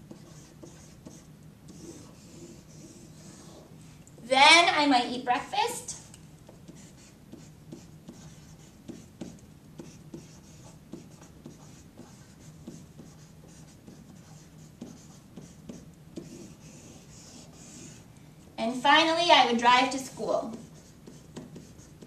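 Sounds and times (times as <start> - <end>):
marker pen writing on paper: 0.0 - 3.7, 6.5 - 18.1, 20.4 - 22.0.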